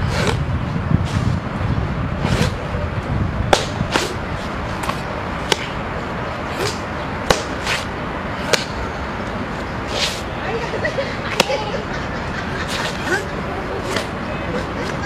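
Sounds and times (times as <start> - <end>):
low steady rumble: 0.0 - 11.0.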